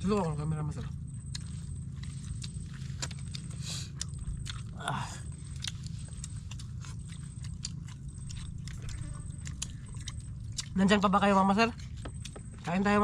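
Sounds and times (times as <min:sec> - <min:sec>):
low rumble: 0:00.0 - 0:13.0
people chewing: 0:00.0 - 0:13.0.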